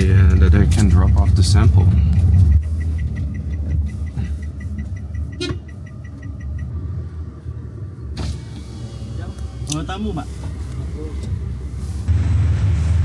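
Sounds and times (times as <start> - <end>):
car rumbling on the road: 0.0 - 13.0
fast short high ticks: 0.7 - 6.7.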